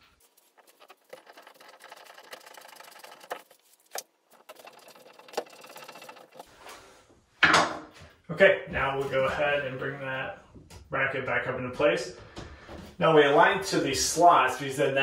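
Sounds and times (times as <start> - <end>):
screwdriver scraping drywall: 0.2 - 6.5.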